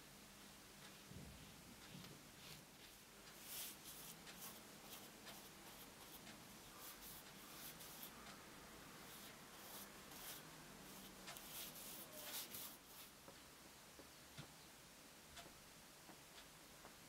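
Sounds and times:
brush scratching on canvas: 0.9 - 8.4, 9.0 - 13.2.

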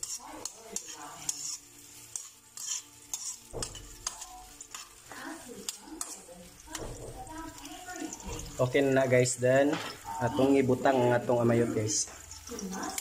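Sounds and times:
metal spoon scraping wok: 0.0 - 13.0
onion and garlic sizzling: 0.0 - 13.0.

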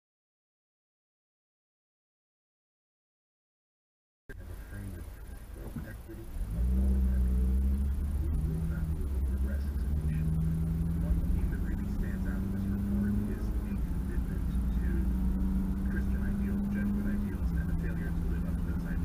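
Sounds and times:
car engine hum: 4.3 - 19.0
road rumble inside car: 4.3 - 19.0.

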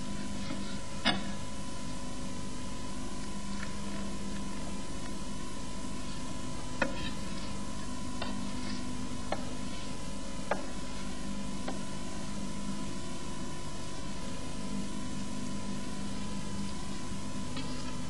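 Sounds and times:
constant low hum: 0.0 - 18.0.

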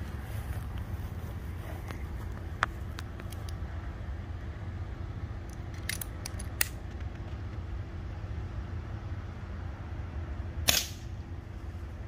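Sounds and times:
steady low rumble: 0.0 - 12.0
air rifle metallic clicks: 5.4 - 7.2.

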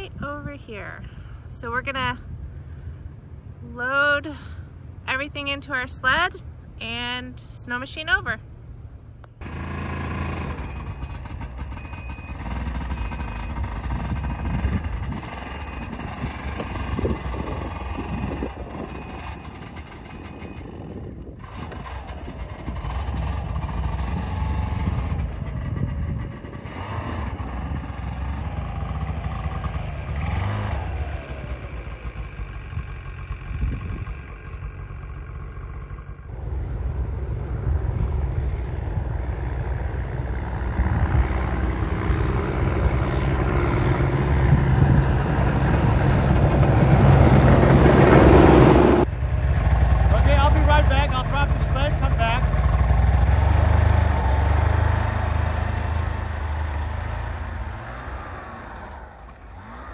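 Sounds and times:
snowmobile engine revving: 9.4 - 36.3, 41.1 - 59.9.

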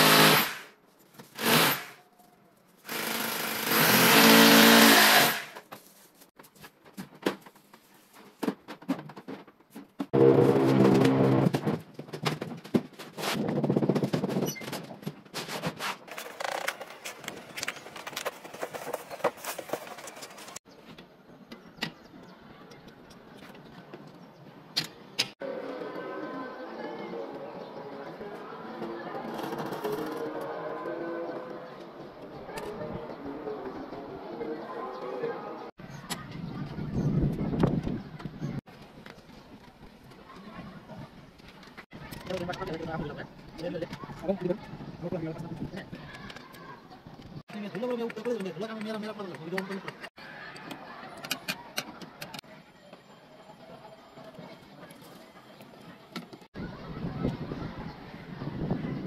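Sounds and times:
power tool running: 0.0 - 0.6, 2.9 - 5.5.

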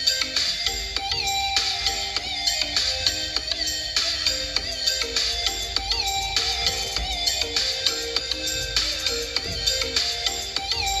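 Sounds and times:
music with beat and bright melody: 0.0 - 11.0.

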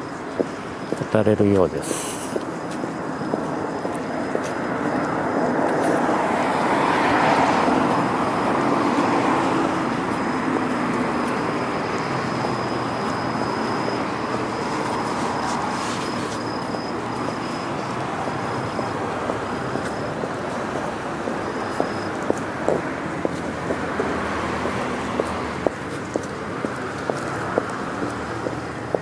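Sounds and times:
car passing: 0.0 - 29.0
traffic hum: 0.0 - 29.0.

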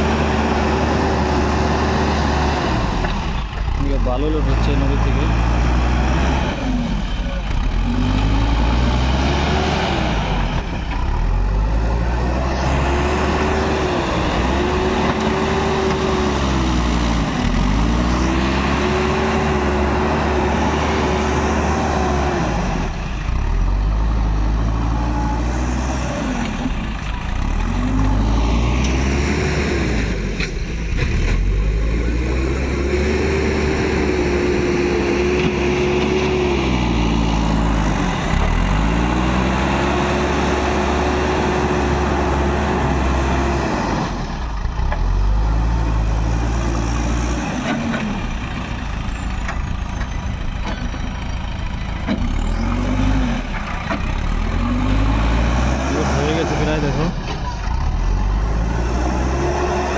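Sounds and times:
backhoe diesel engine revving: 0.0 - 59.9.

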